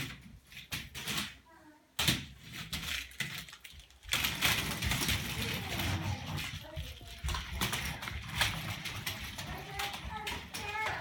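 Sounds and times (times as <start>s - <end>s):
toy stroller wheels rattling: 2.6s - 11.0s.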